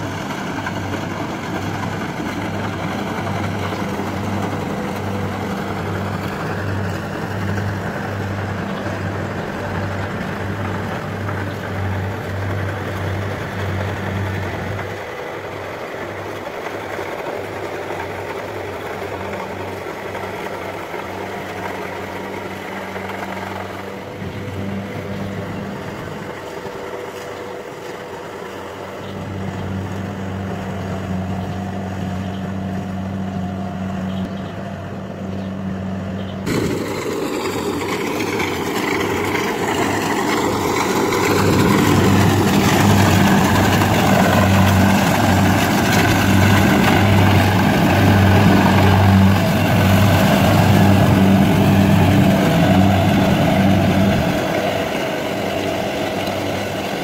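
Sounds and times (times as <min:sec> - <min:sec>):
combine harvester engine running: 0:00.0 - 0:57.0.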